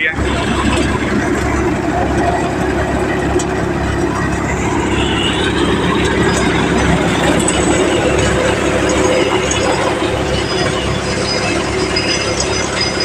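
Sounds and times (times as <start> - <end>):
threshing machine running: 0.0 - 13.0.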